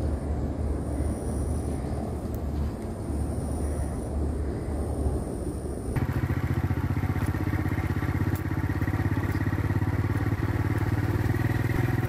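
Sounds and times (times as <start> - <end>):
motorcycle engine running: 6.0 - 12.0.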